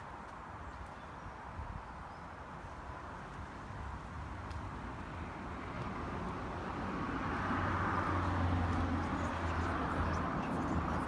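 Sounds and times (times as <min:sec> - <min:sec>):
passing vehicle rushing: 0:04.7 - 0:11.0.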